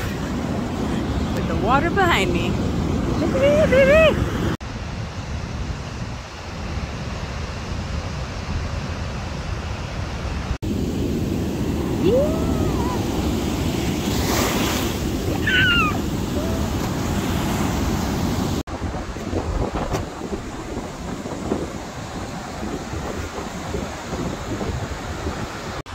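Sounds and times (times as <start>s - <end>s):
ocean surf breaking: 0.0s - 4.6s, 6.4s - 25.9s
wind buffeting microphone: 10.6s - 25.9s.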